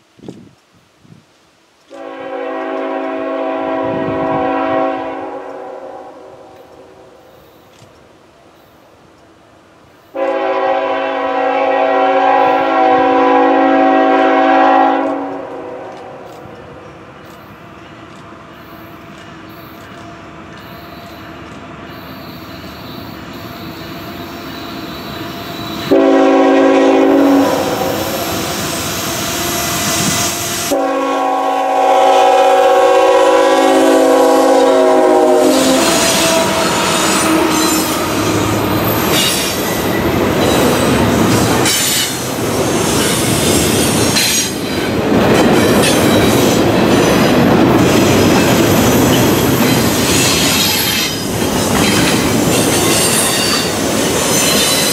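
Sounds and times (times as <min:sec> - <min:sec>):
train air horn blasts: 0:01.9 - 0:07.7, 0:10.1 - 0:16.8, 0:22.0 - 0:42.2
diesel locomotives: 0:01.9 - 0:54.9
train wheels clattering: 0:35.2 - 0:54.9.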